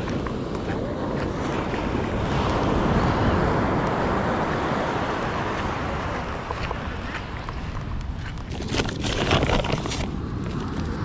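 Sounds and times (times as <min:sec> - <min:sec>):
surf washing up beach: 0:00.0 - 0:11.0
wind on microphone: 0:00.0 - 0:11.0.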